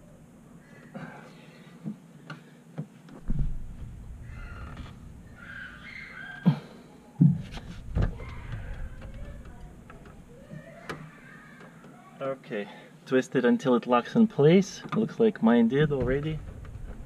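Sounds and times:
low rubbing and rumbling: 15.8s - 17.0s.

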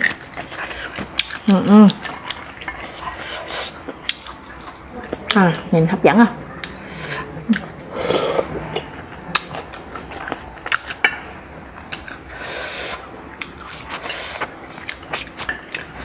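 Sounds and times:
chewing: 0.0s - 5.7s, 6.4s - 16.0s
slurping hisses: 12.3s - 13.1s.

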